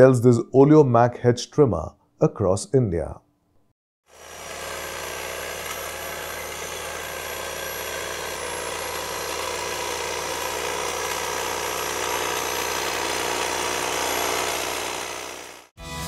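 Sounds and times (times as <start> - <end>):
electric hedge trimmer running: 4.0 - 15.8.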